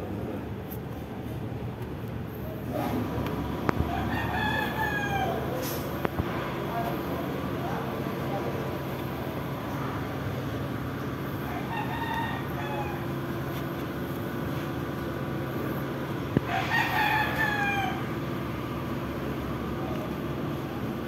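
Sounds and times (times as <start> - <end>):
low background hum: 0.0 - 21.0
rooster crowing: 3.8 - 5.6, 11.3 - 13.4, 16.4 - 18.2.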